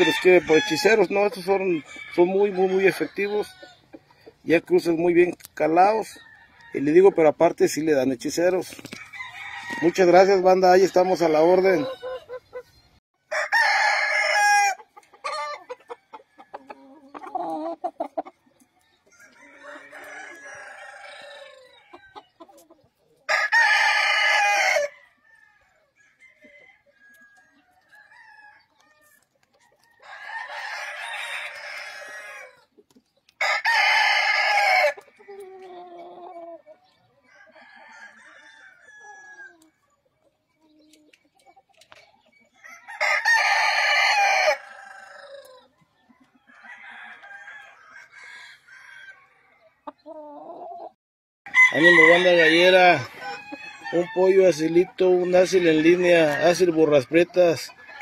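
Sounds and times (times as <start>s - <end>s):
rooster crowing: 0.0s - 1.1s, 9.0s - 10.2s, 13.3s - 16.7s, 19.1s - 22.1s, 23.3s - 28.7s, 29.9s - 32.6s, 33.4s - 35.4s, 37.3s - 39.6s, 42.6s - 45.5s, 46.5s - 49.4s, 51.5s - 56.6s
chickens calling: 0.0s - 58.0s.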